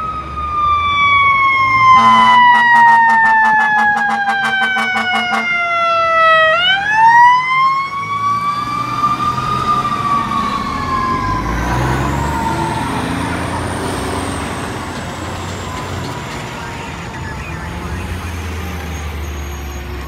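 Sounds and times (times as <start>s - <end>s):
higher siren tone: 0.0s - 14.6s
electronic siren wailing: 0.0s - 19.8s
truck engine rumbling: 0.0s - 20.0s.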